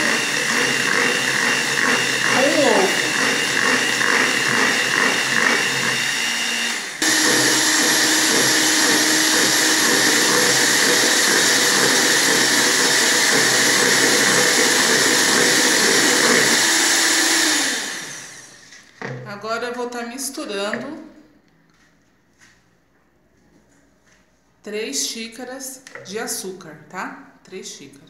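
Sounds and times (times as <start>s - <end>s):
electric hand mixer whipping batter: 0.0s - 18.7s.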